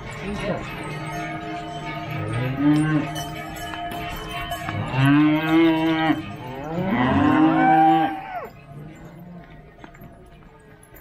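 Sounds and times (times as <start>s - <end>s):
cowbells ringing: 0.0s - 11.0s
cows mooing: 2.2s - 3.2s, 4.7s - 8.5s.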